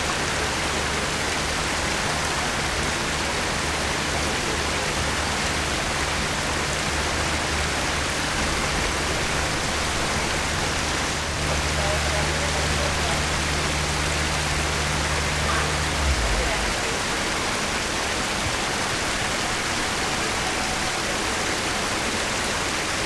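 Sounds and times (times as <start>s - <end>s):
running water rushing: 0.0s - 23.0s
low hum: 4.5s - 22.6s.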